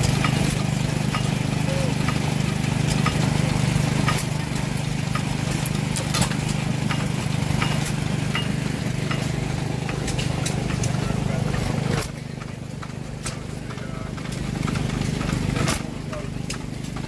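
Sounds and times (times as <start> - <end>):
stationary engine humming: 0.0 - 17.0
sharp metallic clicks: 4.0 - 17.0.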